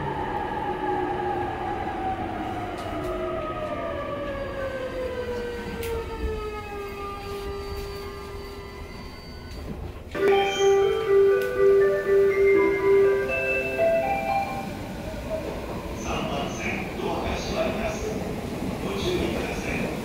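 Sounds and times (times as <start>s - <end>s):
train traction motor whine: 2.8s - 14.9s.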